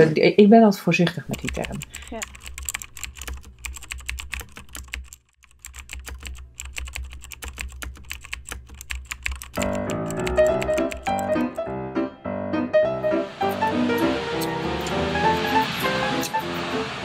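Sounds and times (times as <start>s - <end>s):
computer keyboard typing: 1.3s - 11.6s
music with pitched notes: 9.6s - 17.0s.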